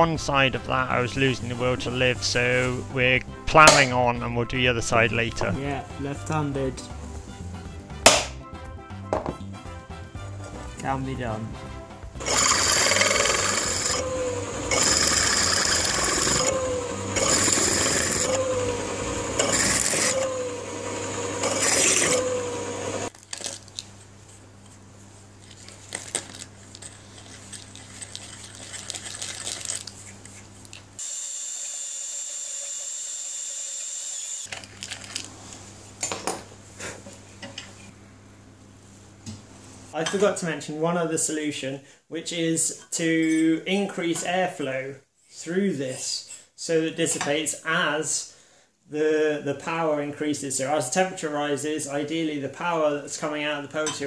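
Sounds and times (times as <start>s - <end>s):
power drill boring into metal: 12.2s - 23.1s, 31.0s - 34.5s.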